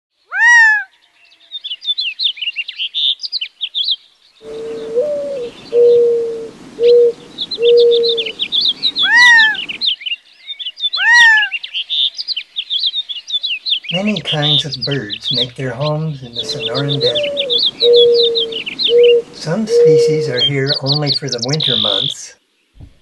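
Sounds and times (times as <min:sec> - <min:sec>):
dove cooing: 0:04.4 - 0:09.8, 0:13.9 - 0:22.1
loud downward-sliding bird call: 0:04.4 - 0:10.0, 0:10.9 - 0:11.8, 0:13.9 - 0:22.1
quick high bird chirping: 0:06.8 - 0:14.0, 0:16.4 - 0:22.0.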